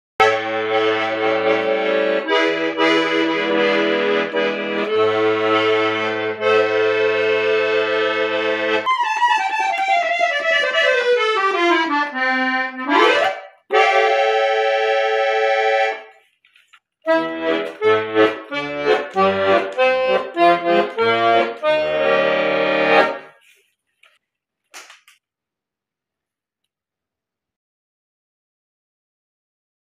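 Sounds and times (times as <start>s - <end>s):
piano accordion playing: 0.2s - 16.2s, 17.1s - 23.4s.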